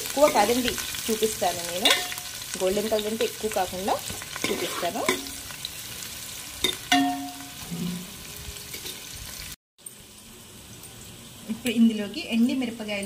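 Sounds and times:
onions sizzling in hot oil: 0.0s - 13.0s
spoon clinking against pan: 1.8s - 2.3s, 4.4s - 5.4s, 6.6s - 7.6s
metal spoon scraping pan: 4.0s - 5.4s.

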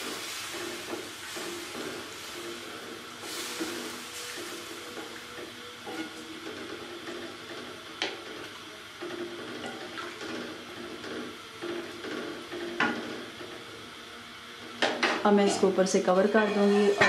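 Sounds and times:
hiss from heating pot: 0.0s - 6.2s.

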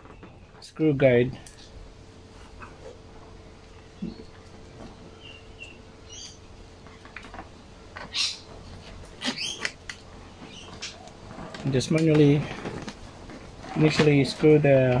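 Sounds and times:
hand handling noise: 6.7s - 15.0s.

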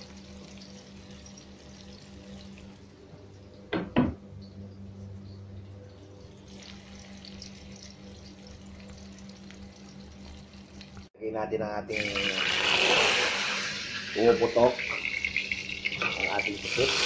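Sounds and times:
onion and garlic sizzling in oil: 0.0s - 2.8s, 6.4s - 11.0s, 11.9s - 17.0s
low steady hum: 0.0s - 12.5s.

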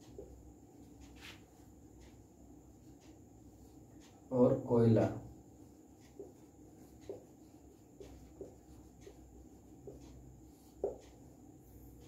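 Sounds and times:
marker pen squeaking on whiteboard: 6.1s - 11.2s.

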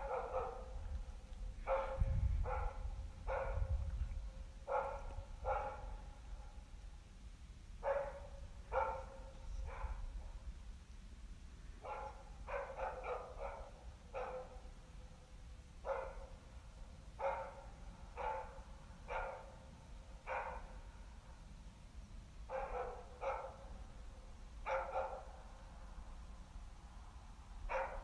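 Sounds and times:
dog barking: 0.0s - 0.9s, 1.6s - 3.8s, 4.7s - 6.6s, 7.8s - 10.2s, 11.8s - 14.7s, 15.8s - 16.4s, 17.2s - 20.8s, 22.5s - 23.8s, 24.6s - 25.4s, 27.7s - 28.0s.

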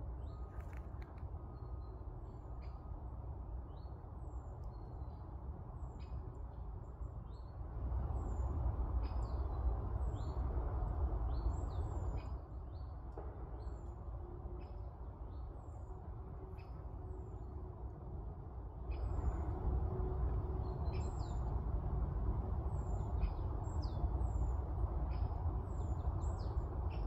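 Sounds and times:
small forest birds chirping: 22.7s - 27.0s.

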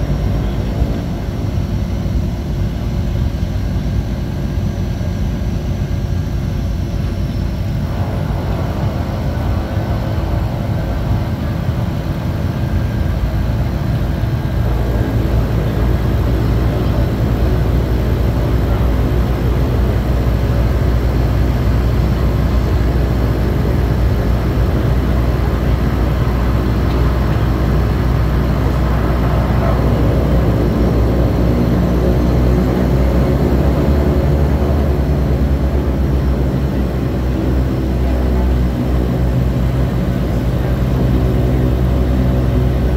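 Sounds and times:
propeller aircraft engine droning: 0.0s - 42.9s.

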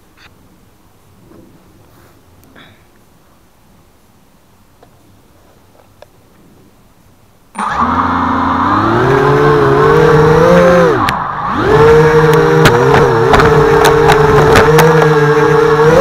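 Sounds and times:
quadcopter motors whining: 7.6s - 16.0s.

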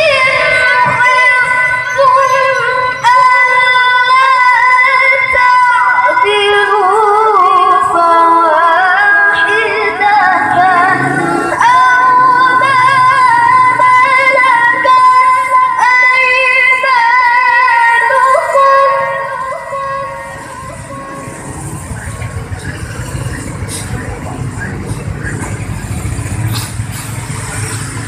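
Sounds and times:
woman reciting melodically: 0.0s - 21.0s.

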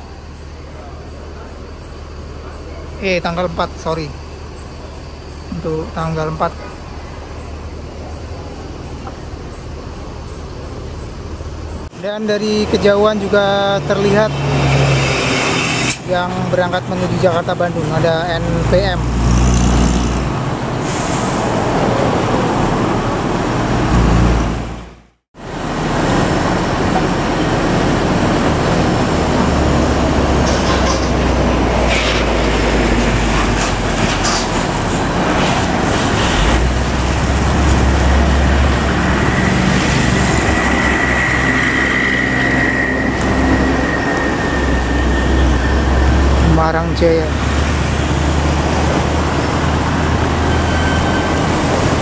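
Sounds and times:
heavy road traffic rumble: 0.0s - 52.0s
thin high whine: 37.9s - 47.3s.

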